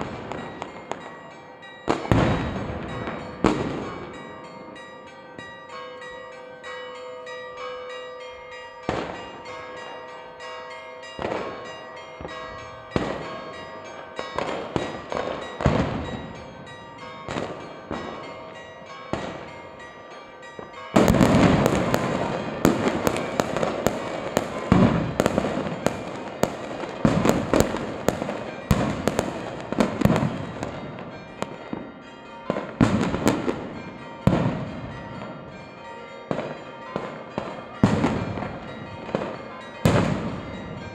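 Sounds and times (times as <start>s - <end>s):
fireworks and firecrackers banging: 0.0s - 1.2s, 1.8s - 4.3s, 8.9s - 9.3s, 11.2s - 11.6s, 12.2s - 13.7s, 14.3s - 16.4s, 17.3s - 18.3s, 19.1s - 19.5s, 20.6s - 31.9s, 32.5s - 35.6s, 36.3s - 40.9s
church bells ringing: 0.0s - 40.9s.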